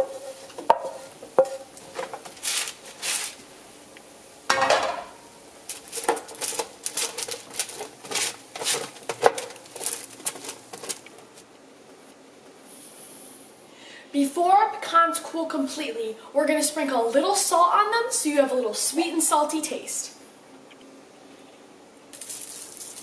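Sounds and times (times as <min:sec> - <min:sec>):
wooden spoon scraping metal pan: 0:05.7 - 0:11.0.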